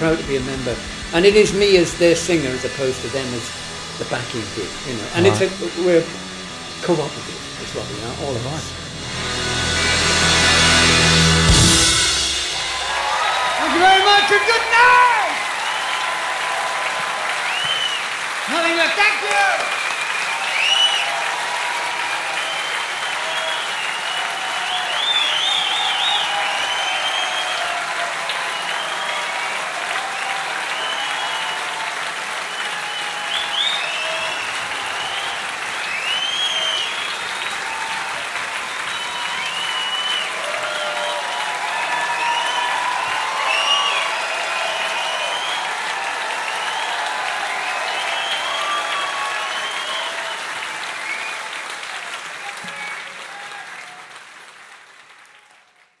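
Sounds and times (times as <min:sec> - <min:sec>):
audience applauding: 0:00.0 - 0:56.0
high whistles: 0:11.5 - 0:16.5, 0:17.3 - 0:18.2, 0:19.7 - 0:29.6, 0:30.2 - 0:51.5.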